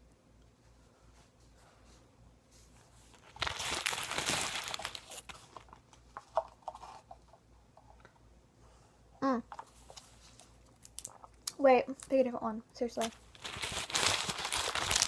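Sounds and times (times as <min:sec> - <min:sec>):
plastic wrappers crinkling: 0:03.1 - 0:06.5, 0:10.2 - 0:12.2, 0:13.0 - 0:15.0.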